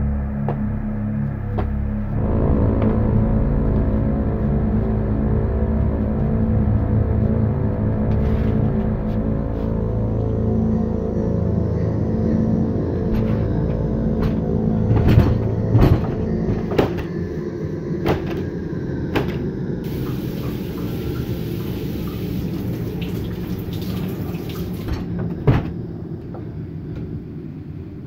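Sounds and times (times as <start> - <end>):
low dark drone: 0.0 - 28.0
shower running: 19.8 - 25.1.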